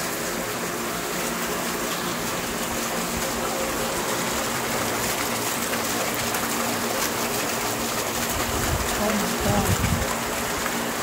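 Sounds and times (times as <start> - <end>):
heavy rain on paving: 0.0 - 11.0
water splashing into bucket: 0.0 - 11.0.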